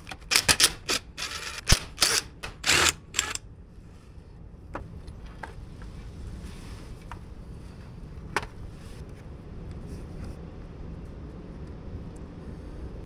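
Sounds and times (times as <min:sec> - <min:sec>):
small parts clicking and rattling: 0:00.0 - 0:03.4.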